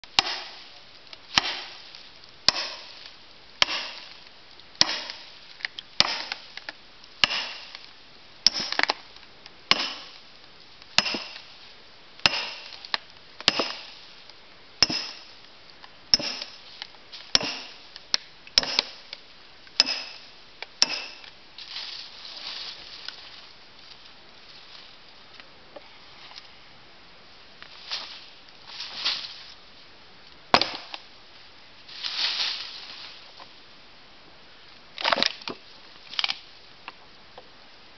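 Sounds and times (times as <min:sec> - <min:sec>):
hammer striking steel wedges: 0:00.1 - 0:00.6, 0:01.4 - 0:01.8, 0:02.5 - 0:02.9, 0:03.6 - 0:04.1, 0:04.8 - 0:05.2, 0:06.0 - 0:06.4, 0:07.2 - 0:07.8, 0:08.5 - 0:08.9, 0:09.7 - 0:10.2, 0:11.0 - 0:11.4, 0:12.3 - 0:12.8, 0:13.5 - 0:13.9, 0:14.8 - 0:15.3, 0:16.2 - 0:16.6, 0:17.3 - 0:17.8, 0:18.6 - 0:19.0, 0:19.8 - 0:21.3.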